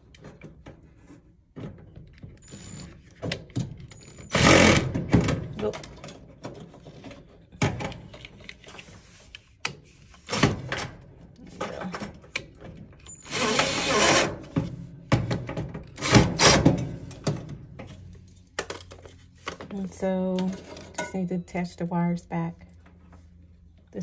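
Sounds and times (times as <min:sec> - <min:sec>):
cordless drill driving screw: 0:13.2 - 0:14.3.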